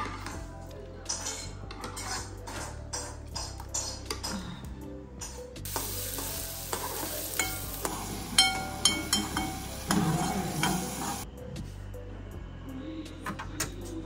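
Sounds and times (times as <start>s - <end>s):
food sizzling in a pan: 5.7s - 11.2s
metal spoon clinking against pan: 5.7s - 11.2s.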